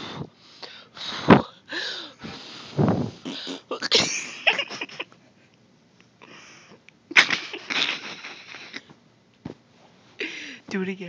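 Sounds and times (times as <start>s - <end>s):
person making breathy noise bursts: 1.1s - 3.8s.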